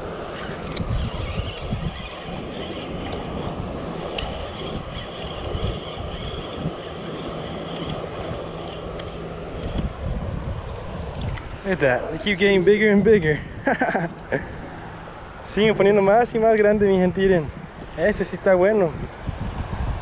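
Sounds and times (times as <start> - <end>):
wind buffeting microphone: 0.0 - 20.0
fishing reel whirring: 0.1 - 9.9.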